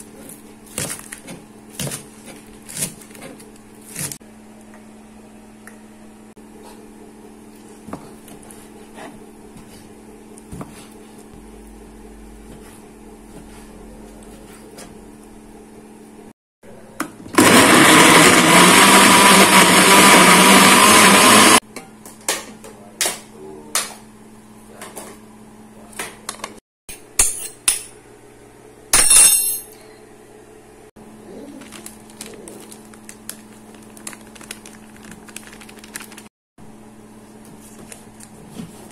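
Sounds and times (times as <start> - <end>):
blender grinding: 17.3 - 21.6.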